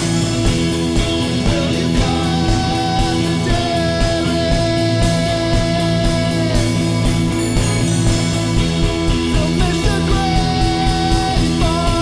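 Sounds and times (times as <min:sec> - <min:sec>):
rock music with guitar: 0:00.0 - 0:12.0.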